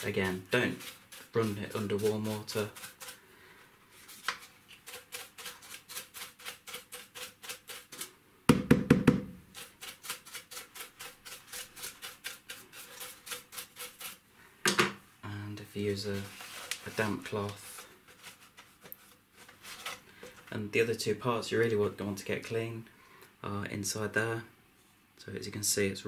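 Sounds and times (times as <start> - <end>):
small brush scrubbing: 0.0 - 3.3, 3.9 - 8.1, 9.5 - 14.2, 15.8 - 20.6
loud knock: 8.5 - 9.4.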